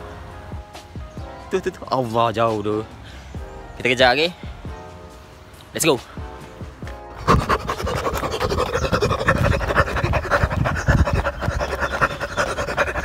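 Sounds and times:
microphone rubbing and knocking: 0:07.2 - 0:13.0
person panting while running: 0:07.2 - 0:13.0.

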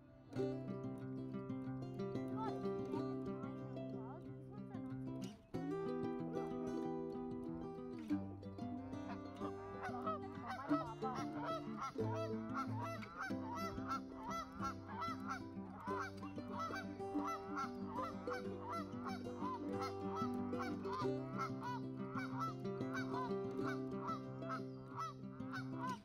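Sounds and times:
geese honking: 0:09.0 - 0:26.0.

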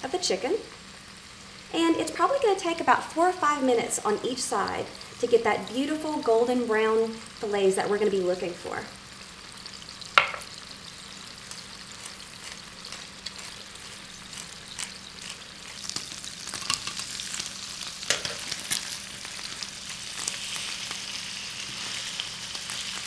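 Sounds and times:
meat sizzling in a skillet: 0:00.0 - 0:23.0
metal tongs clicking on pan: 0:18.1 - 0:18.8.

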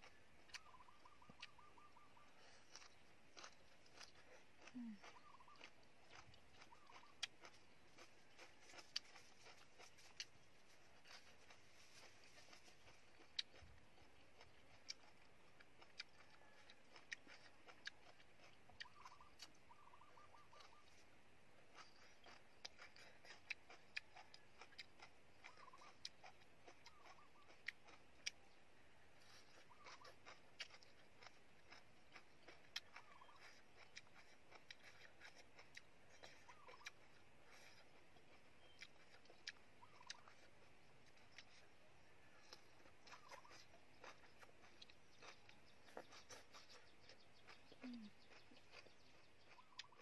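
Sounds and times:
chewing: 0:00.0 - 0:50.0
chopsticks and mouth clicks: 0:42.4 - 0:50.0.

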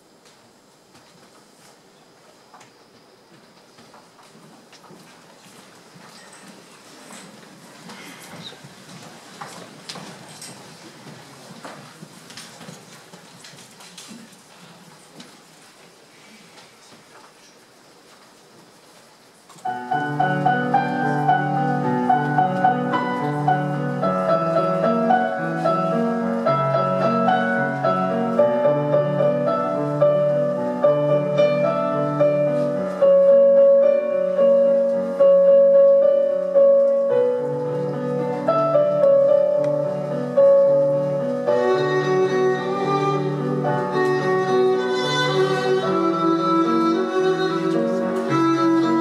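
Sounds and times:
instrumental music: 0:19.6 - 0:49.0.

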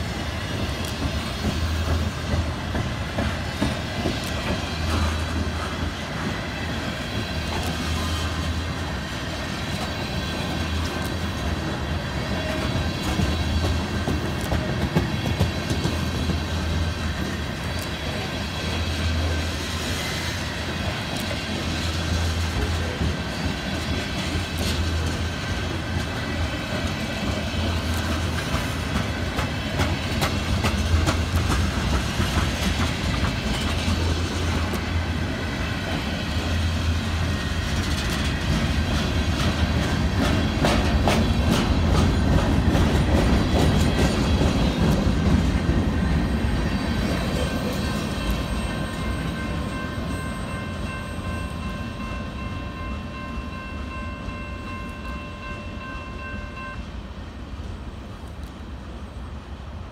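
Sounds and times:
freight train rumble: 0:00.0 - 0:59.9
wheels clicking over rail joints: 0:00.4 - 0:18.2, 0:20.7 - 0:35.2, 0:35.9 - 0:51.3.

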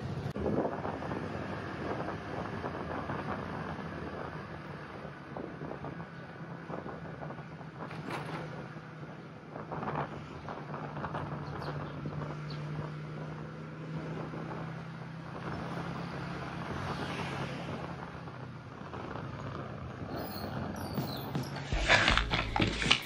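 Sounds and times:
wind on microphone: 0:00.0 - 0:23.0
vehicle engine humming: 0:09.2 - 0:23.0.

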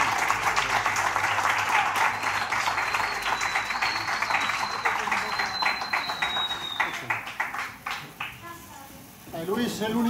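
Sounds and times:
crowd applauding: 0:00.0 - 0:08.4
thin high whistle: 0:02.0 - 0:07.1.

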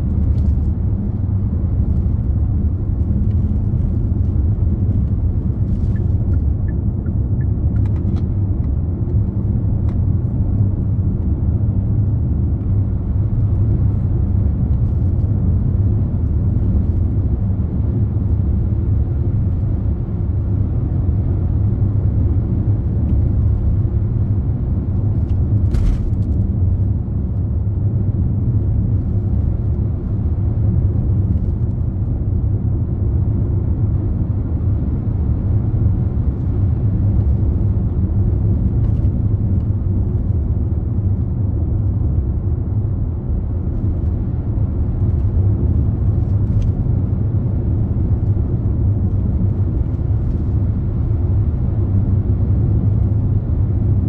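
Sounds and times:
car driving road rumble: 0:00.0 - 0:54.0.

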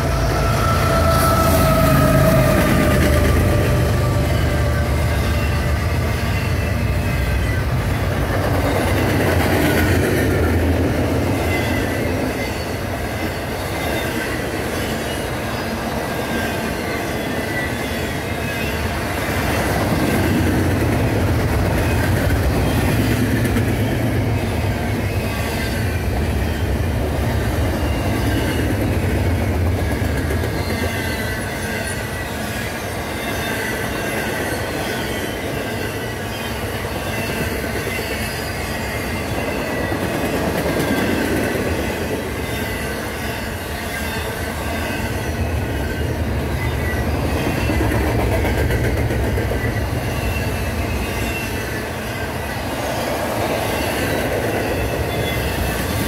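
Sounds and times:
high-pitched wheel squeal: 0:00.0 - 0:08.0, 0:49.4 - 0:56.0
train wheels rumbling on track: 0:00.0 - 0:56.0.

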